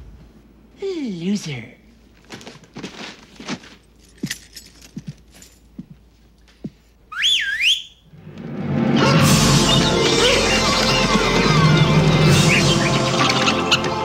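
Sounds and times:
person whistling: 7.1 - 8.0
music: 8.2 - 14.0.

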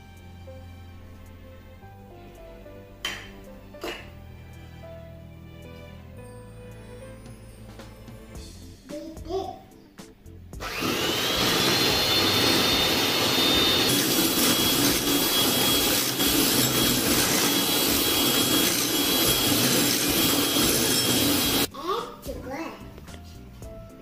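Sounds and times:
electric hand mixer whirring: 10.6 - 21.7.

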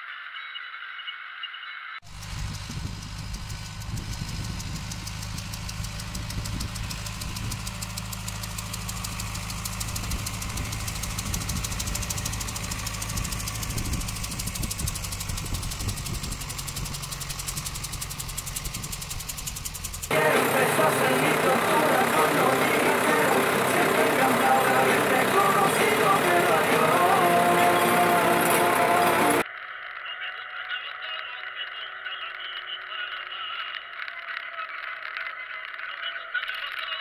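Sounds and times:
tractor diesel engine running: 2.0 - 29.4.

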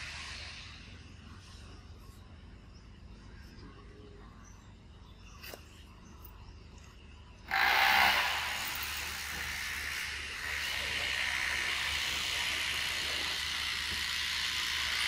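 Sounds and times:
cicada chorus: 7.4 - 15.0.

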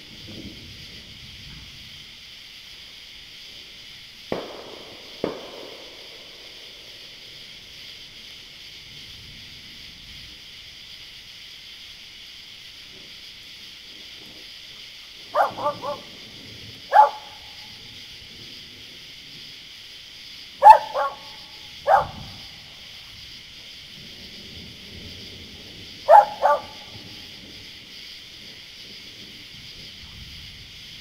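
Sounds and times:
steady high hiss: 0.0 - 31.0
dog barking: 15.3 - 16.2, 16.9 - 17.6, 20.6 - 22.5, 26.0 - 27.0.

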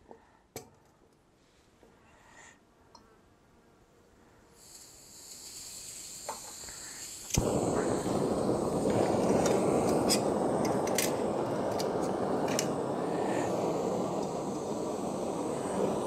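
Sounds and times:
gas hissing from valve: 4.6 - 16.0
burner lighting with a pop: 5.3 - 16.0.

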